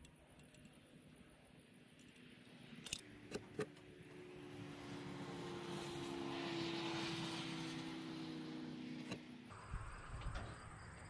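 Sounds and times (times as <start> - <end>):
passing vehicle engine hum: 0.8 - 11.0
sharp metallic clicks: 1.9 - 3.8.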